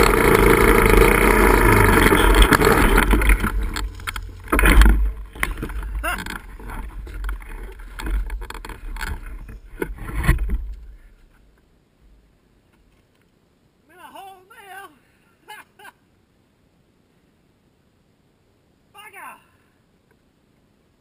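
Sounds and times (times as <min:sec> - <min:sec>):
dirt bike engine revving: 0:00.0 - 0:08.1.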